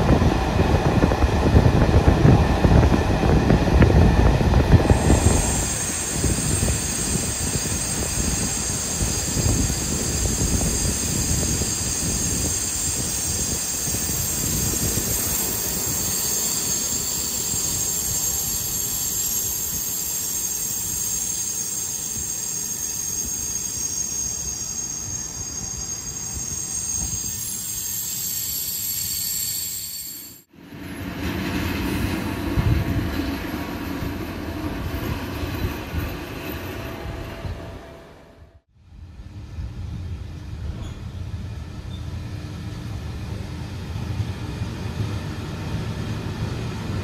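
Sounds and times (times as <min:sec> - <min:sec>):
train running gear noise: 0:00.0 - 0:38.2, 0:39.6 - 0:47.0
low rumble of train moving: 0:00.0 - 0:47.0
train wheels squealing: 0:04.8 - 0:38.4, 0:40.7 - 0:42.3.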